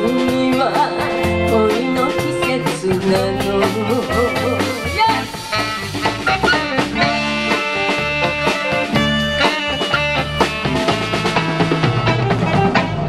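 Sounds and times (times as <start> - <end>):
drum kit beat: 0.0 - 13.0
electric guitars: 0.0 - 13.0
saxophones: 4.0 - 10.3.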